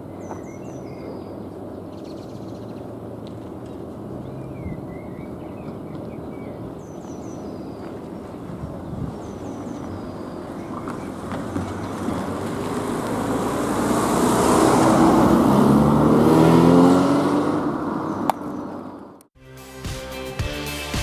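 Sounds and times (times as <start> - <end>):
car passing by: 8.1 - 18.9.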